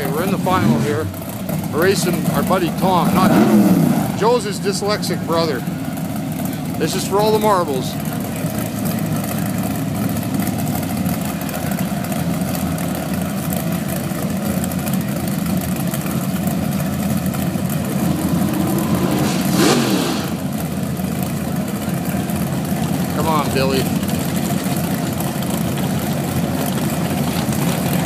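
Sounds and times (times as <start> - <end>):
drag car engine idling: 0.0 - 28.0
engine rush falling in pitch: 16.9 - 28.0.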